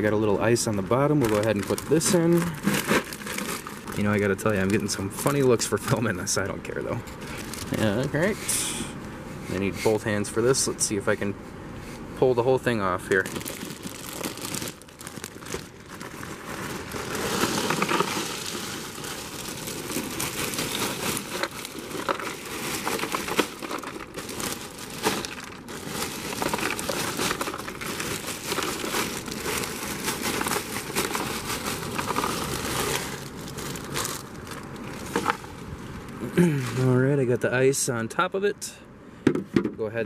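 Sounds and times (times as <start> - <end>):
plastic bag crinkling: 0.0 - 6.2, 7.2 - 8.3, 13.0 - 36.9
ice cubes clinking: 16.9 - 34.2.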